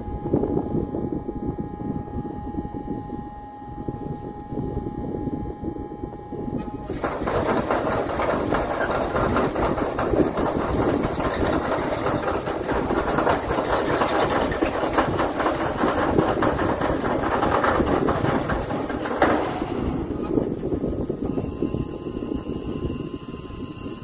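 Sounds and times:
machine mechanical clatter: 6.6s - 24.0s.

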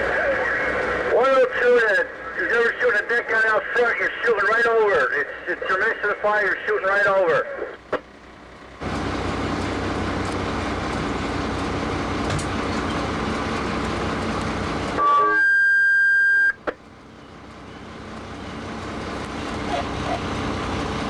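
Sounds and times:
fire engines running: 0.0s - 15.3s, 15.9s - 21.0s.

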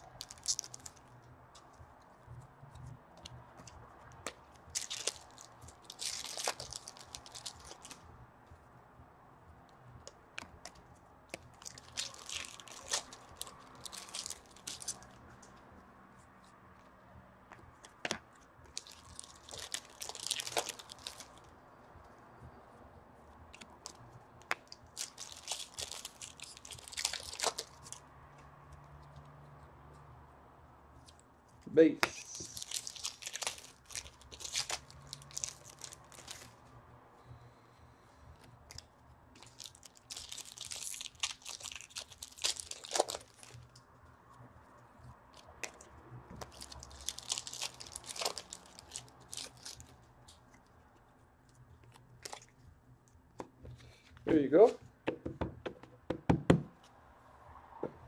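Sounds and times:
card pack wrappers crinkling: 0.0s - 1.1s, 4.2s - 8.0s, 11.5s - 15.2s, 18.7s - 21.5s, 23.6s - 28.0s, 32.1s - 36.5s, 39.4s - 43.7s, 46.4s - 50.4s.

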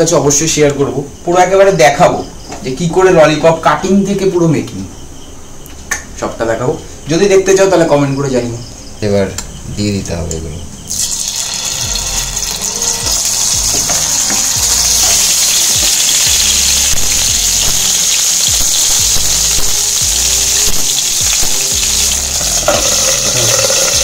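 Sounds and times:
food sizzling in hot oil: 10.9s - 24.0s.

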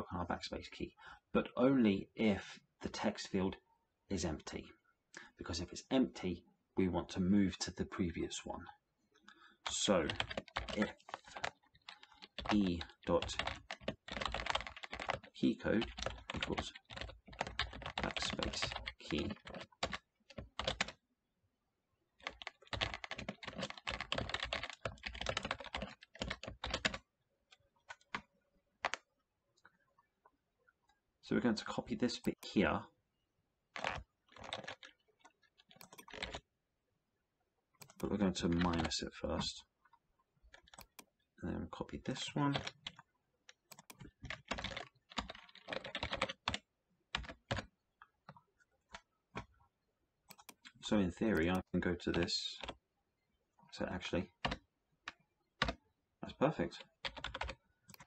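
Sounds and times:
typing on computer keyboard: 9.7s - 21.0s, 22.2s - 27.0s, 27.6s - 29.0s, 33.8s - 36.4s, 37.8s - 38.9s, 40.5s - 41.1s, 42.5s - 47.7s, 50.3s - 52.8s, 54.4s - 55.8s, 56.8s - 58.0s.

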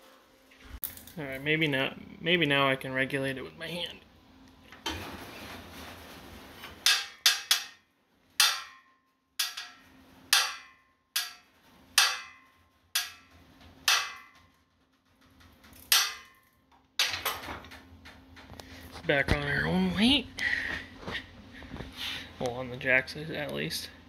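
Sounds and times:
sharp metallic clanks: 6.8s - 14.5s, 15.8s - 17.4s.

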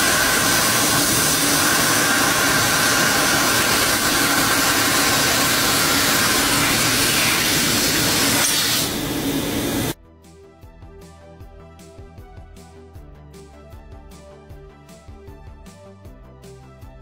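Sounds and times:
laser cutter hissing: 0.0s - 10.0s.

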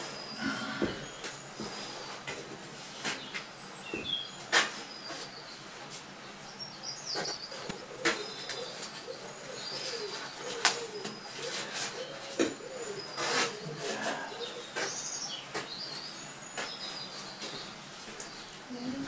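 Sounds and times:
small birds chirping: 0.0s - 19.0s
pigeon cooing: 7.6s - 15.0s.

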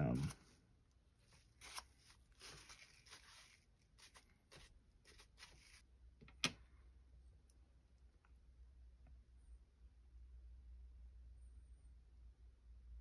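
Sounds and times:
wipe swishing over paper: 1.2s - 5.8s.

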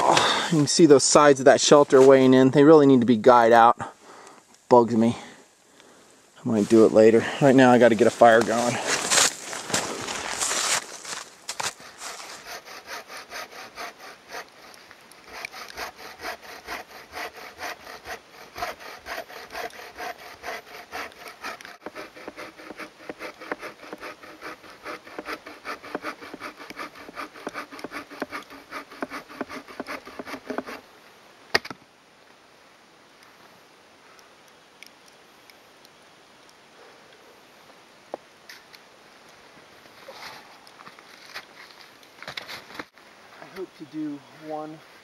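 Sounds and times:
bow saw cutting a log: 10.4s - 30.8s.

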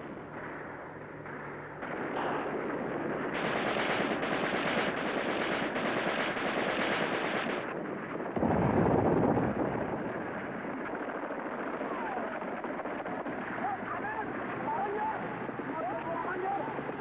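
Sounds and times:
machine-gun bursts: 3.3s - 7.7s.

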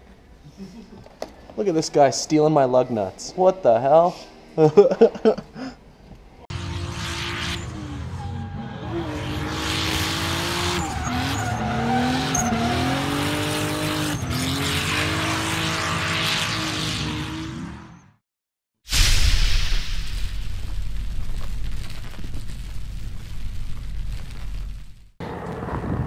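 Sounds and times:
car engine revving: 6.5s - 18.1s
tyres squealing: 10.5s - 14.6s.

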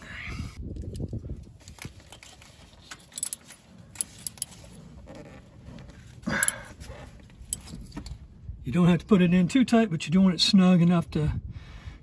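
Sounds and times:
ratchet clinking and clicking: 2.1s - 4.8s.

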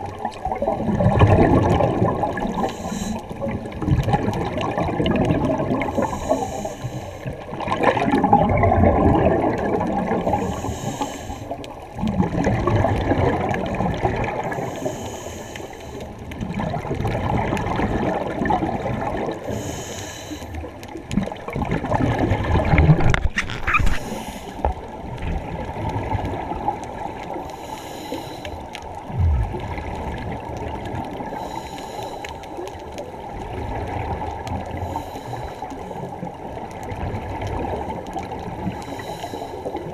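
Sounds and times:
exhaled air bubbling: 0.0s - 39.9s
regulator hiss on inhale: 2.6s - 3.4s, 5.9s - 7.4s, 10.2s - 11.7s, 14.5s - 16.2s, 19.4s - 20.7s, 23.9s - 24.7s, 27.3s - 28.7s, 31.2s - 32.7s, 34.7s - 36.1s, 38.7s - 39.9s.

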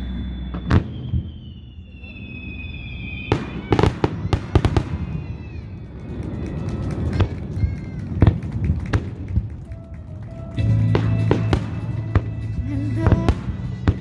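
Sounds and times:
firework whistle: 0.0s - 8.3s
sharp firework cracks: 3.2s - 9.5s.

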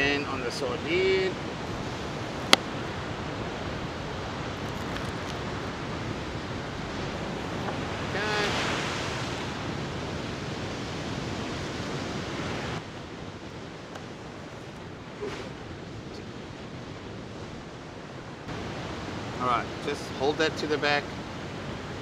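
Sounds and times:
ocean surf breaking: 0.0s - 13.6s
wind on microphone: 1.2s - 19.8s.

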